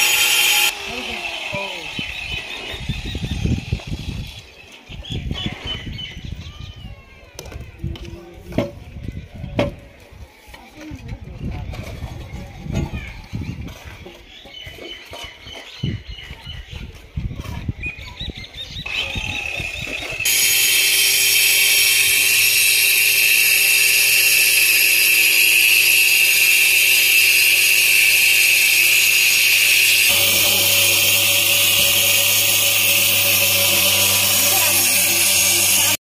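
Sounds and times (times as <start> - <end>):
power cutting tool whining: 0.0 - 4.5, 18.9 - 36.0.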